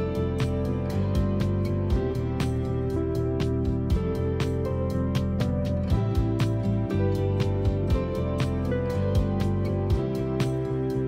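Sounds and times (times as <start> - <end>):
background music with ticking beat: 0.0 - 11.0.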